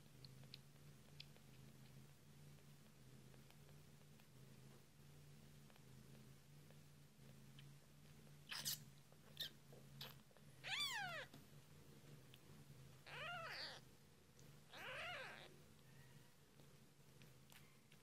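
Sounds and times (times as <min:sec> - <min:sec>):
faint clicks: 0:00.0 - 0:04.8
kitten mewing: 0:13.0 - 0:13.8, 0:14.7 - 0:15.5.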